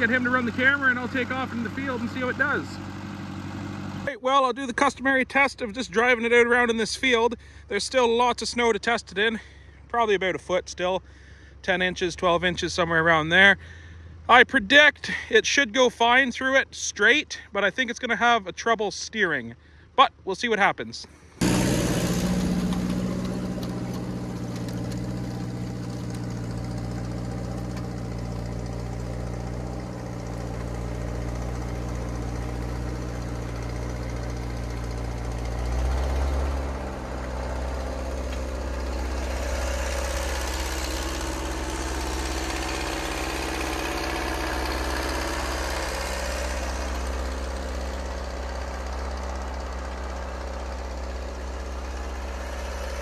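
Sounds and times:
tractor engine under load: 0.0 - 4.1, 21.0 - 53.0.

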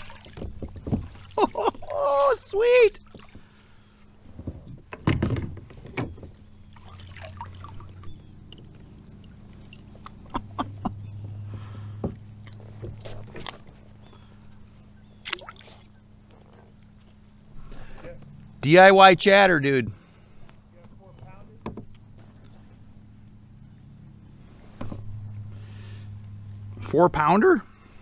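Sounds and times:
fishing gear knocking on hull: 0.0 - 1.5, 4.4 - 6.4
water splashing and sloshing: 0.0 - 17.6.

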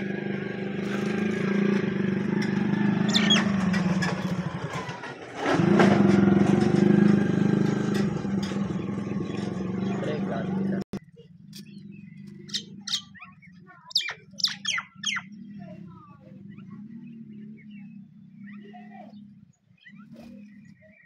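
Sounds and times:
engine humming: 0.0 - 21.0
bird chirps: 3.0 - 4.4, 11.0 - 21.0.

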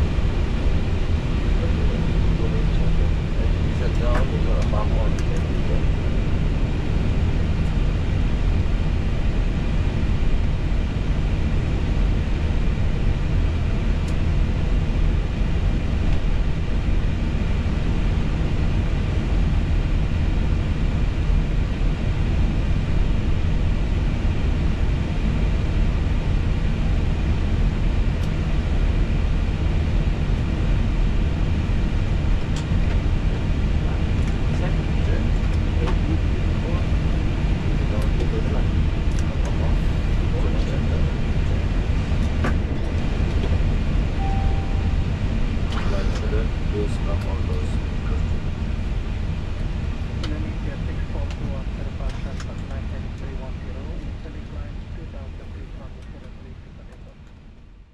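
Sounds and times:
low cabin rumble: 0.0 - 57.9
faint steady tones: 31.8 - 57.2.

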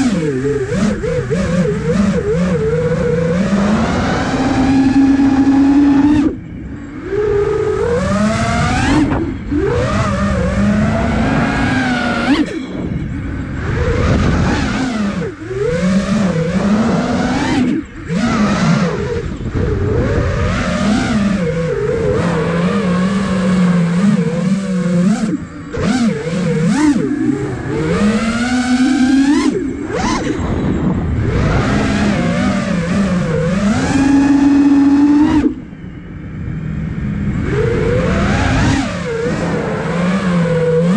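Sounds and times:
wind rush: 0.0 - 23.6, 27.0 - 40.9
drone motors whining: 0.0 - 40.9.

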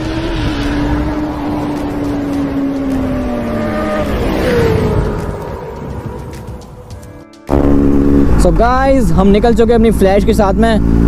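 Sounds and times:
motorcycle engine at high revs: 0.0 - 6.2, 7.5 - 8.7, 10.0 - 11.0.

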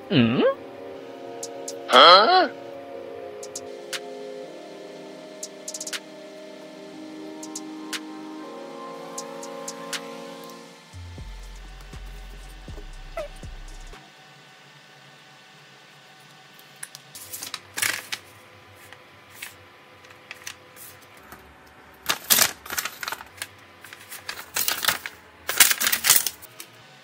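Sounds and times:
paper crinkling and rustling: 17.2 - 21.4, 22.0 - 26.5.

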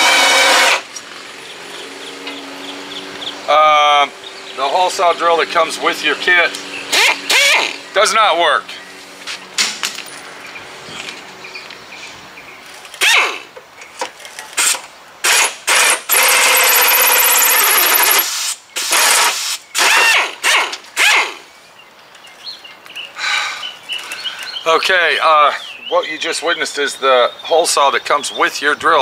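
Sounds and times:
pneumatic drill bursts: 0.0 - 1.0, 6.9 - 7.8, 13.0 - 13.5, 14.6 - 21.4.

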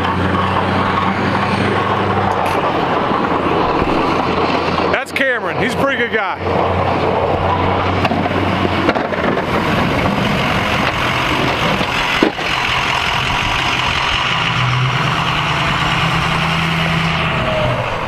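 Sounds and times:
plow blade scraping snow: 0.0 - 18.0
plow truck engine running: 0.0 - 18.0.

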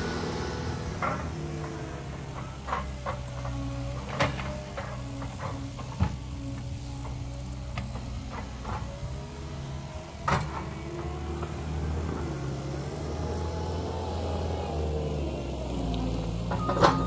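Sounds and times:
diesel engine driving past: 0.0 - 17.0.

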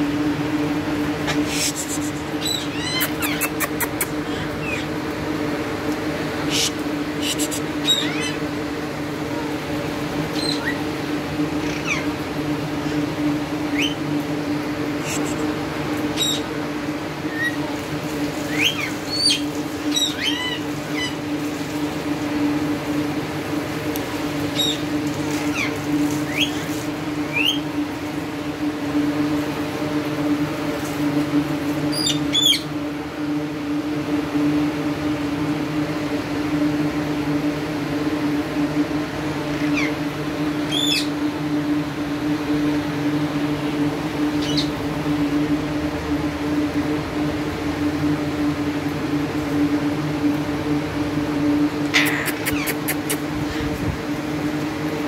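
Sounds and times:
steady low hum: 0.0 - 55.0
parakeets squawking: 1.2 - 5.0, 6.4 - 8.5, 10.3 - 10.8, 11.5 - 12.2, 13.7 - 14.0, 15.0 - 15.5, 16.1 - 16.5, 18.5 - 21.3, 24.4 - 27.6, 31.9 - 32.7, 39.5 - 40.0, 40.7 - 41.1, 44.4 - 44.8, 51.8 - 53.7.

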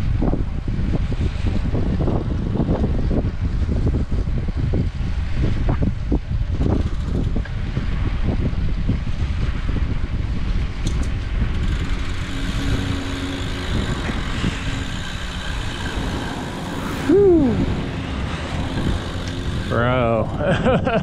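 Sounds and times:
wind and road noise: 0.0 - 21.0
motor vehicle running: 9.3 - 21.0
rising and falling cry: 14.6 - 20.5.

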